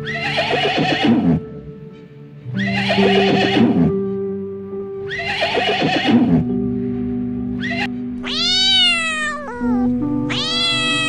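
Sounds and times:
background music with held notes: 0.0s - 11.0s
horse whinnying: 0.1s - 1.4s, 2.6s - 3.9s, 5.1s - 6.4s.

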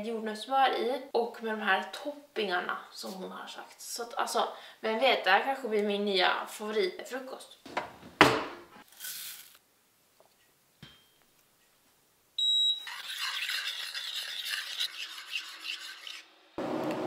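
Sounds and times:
oats poured into a steel saucepan: 8.8s - 9.6s
short high beep of hob controls: 12.4s - 12.9s
spoon stirring and scraping pan: 12.8s - 16.3s.

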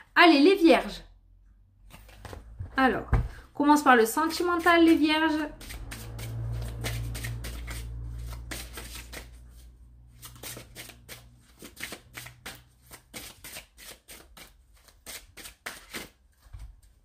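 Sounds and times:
cards being shuffled: 1.9s - 2.5s, 5.6s - 16.6s.

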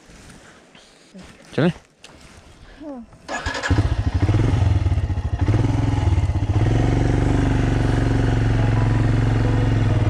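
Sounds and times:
motorcycle engine running: 3.3s - 10.0s.

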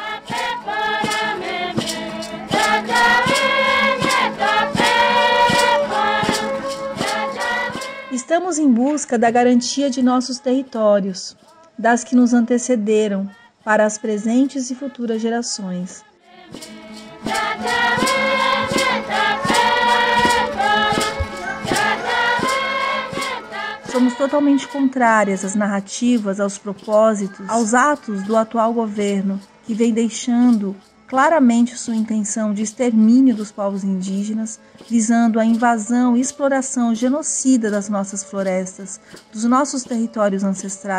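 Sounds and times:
choir singing in unison: 0.0s - 8.2s, 15.8s - 25.6s
steady struck beat: 0.0s - 8.2s, 16.5s - 25.3s.

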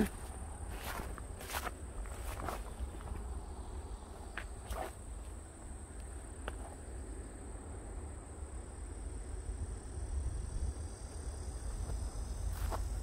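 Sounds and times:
footsteps on weedy path: 0.0s - 5.6s, 11.6s - 13.0s.

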